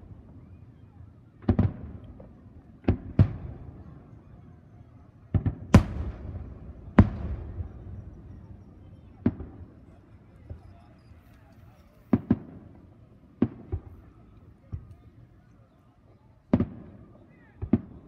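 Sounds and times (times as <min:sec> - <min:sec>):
firework shells booming: 0:05.3 - 0:10.6, 0:12.0 - 0:14.9.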